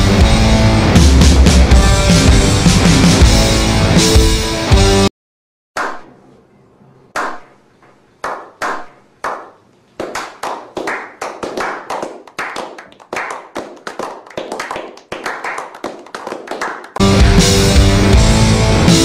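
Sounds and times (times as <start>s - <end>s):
loud rock music: 0.0s - 5.1s, 17.0s - 19.0s
hands clapping: 5.8s - 6.1s, 7.2s - 17.2s.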